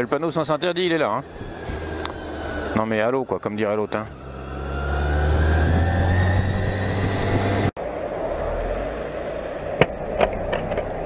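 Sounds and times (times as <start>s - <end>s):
motorcycle engine accelerating: 1.0s - 7.7s.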